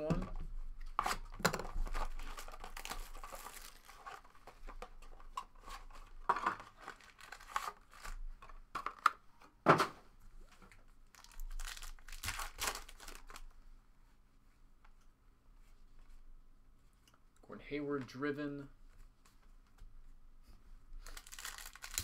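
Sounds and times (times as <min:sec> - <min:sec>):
wrapper tearing and crinkling: 0:00.9 - 0:04.4, 0:05.8 - 0:08.2, 0:11.1 - 0:13.5, 0:21.0 - 0:22.0
card packs being handled: 0:00.9 - 0:09.1, 0:10.8 - 0:13.5, 0:21.0 - 0:22.0.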